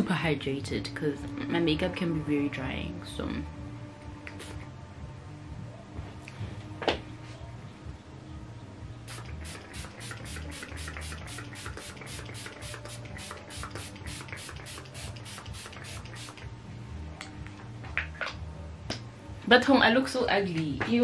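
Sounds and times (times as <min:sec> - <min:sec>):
pump spray bottle hissing: 0:04.3 - 0:04.7, 0:09.1 - 0:16.4.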